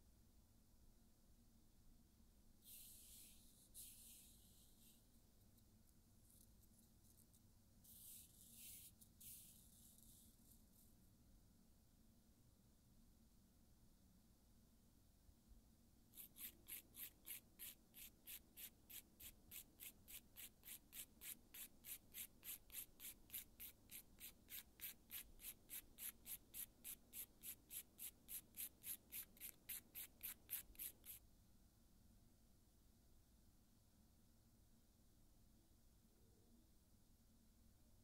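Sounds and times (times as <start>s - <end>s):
nail file rasping on fingernail: 16.1s - 31.2s.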